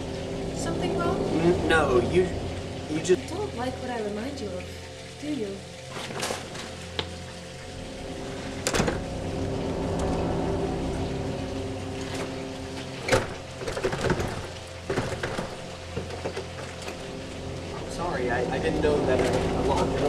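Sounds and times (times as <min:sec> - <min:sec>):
droning music with low tones: 0:00.0 - 0:20.0.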